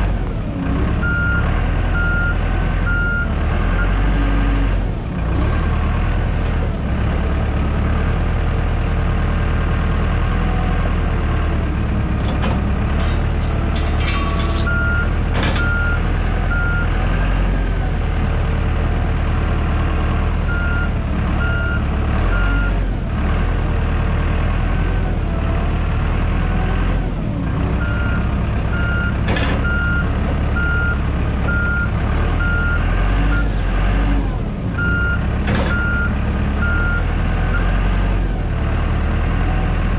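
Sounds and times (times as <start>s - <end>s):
diesel engine running: 0.0s - 39.9s
reversing alarm beeping: 1.0s - 1.4s, 14.4s - 16.9s, 27.8s - 33.5s.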